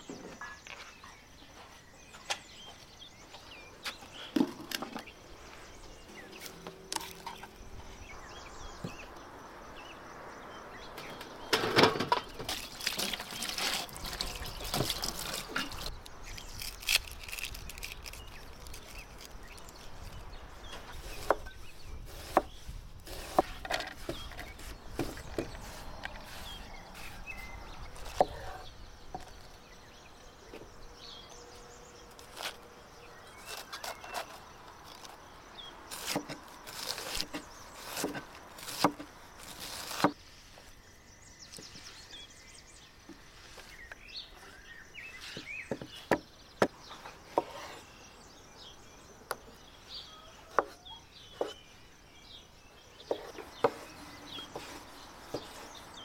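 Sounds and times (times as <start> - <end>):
rustling: 11.6 - 21.4
faint bird chirps: 38.6 - 56.0.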